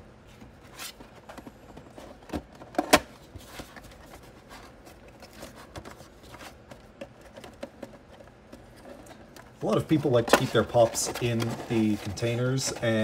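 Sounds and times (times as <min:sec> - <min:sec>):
plastic crackling and rustling: 0:00.4 - 0:13.0.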